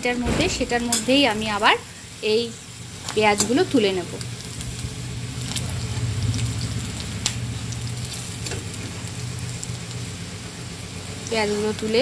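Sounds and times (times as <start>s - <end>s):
onions sizzling in oil: 0.0s - 12.0s
metal spatula knocking pan: 0.5s - 1.6s
low hum: 3.9s - 10.5s.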